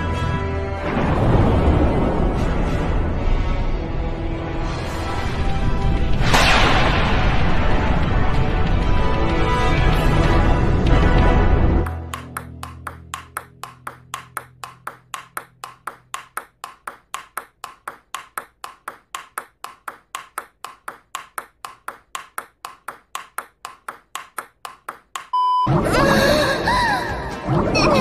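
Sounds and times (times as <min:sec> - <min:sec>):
table tennis ball clicking: 0:11.9 - 0:25.4.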